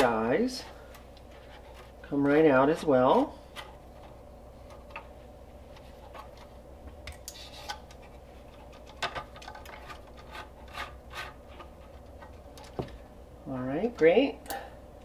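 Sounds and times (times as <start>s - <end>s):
fingers rubbing wiring: 7.3s - 12.5s.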